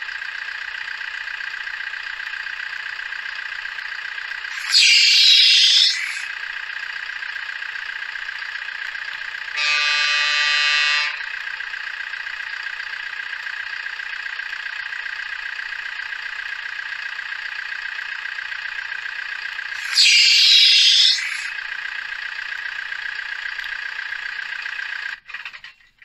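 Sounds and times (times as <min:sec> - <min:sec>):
truck engine idling: 0:00.0 - 0:26.0
truck horn blast: 0:09.6 - 0:11.4.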